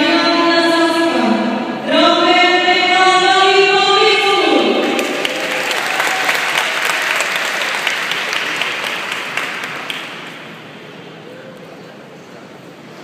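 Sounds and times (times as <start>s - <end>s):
audience clapping: 4.8s - 10.6s.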